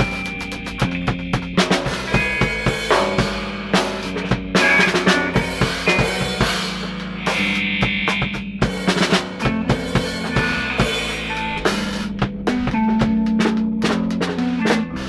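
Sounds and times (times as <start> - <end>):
bass and guitar holding notes: 0.0 - 15.0
drum kit steady beat: 0.0 - 15.0.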